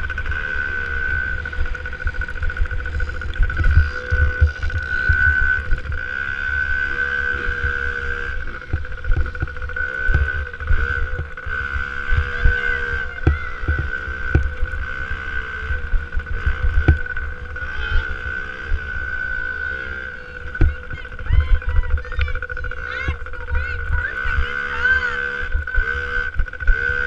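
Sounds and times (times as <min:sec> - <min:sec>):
motocross bike engine revving: 0:00.0 - 0:27.0
wind on microphone: 0:00.9 - 0:27.0
low thumps: 0:07.5 - 0:15.0, 0:15.6 - 0:18.1, 0:20.4 - 0:24.5.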